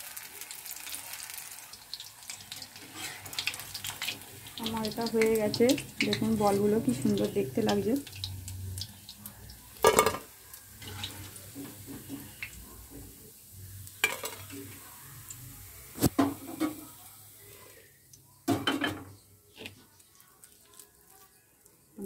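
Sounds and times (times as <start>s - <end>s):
metal spoon clanking on pan: 9.8s - 12.3s, 14.0s - 14.6s.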